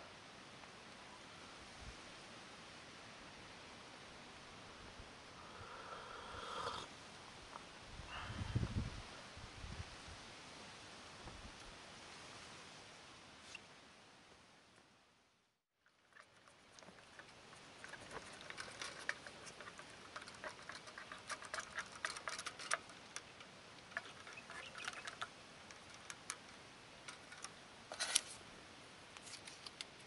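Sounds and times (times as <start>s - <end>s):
stirrer clicking in metal mug: 16.2s - 23.2s.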